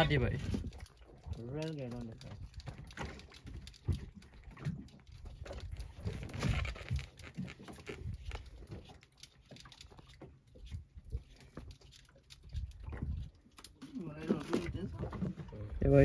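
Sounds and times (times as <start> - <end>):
wind on microphone: 0.0 - 0.8, 12.5 - 13.4.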